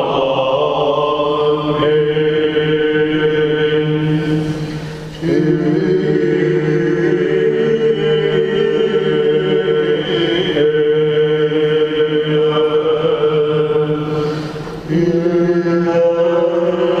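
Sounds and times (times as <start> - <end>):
held vocal drone: 0.0 - 17.0
man chanting: 14.9 - 17.0.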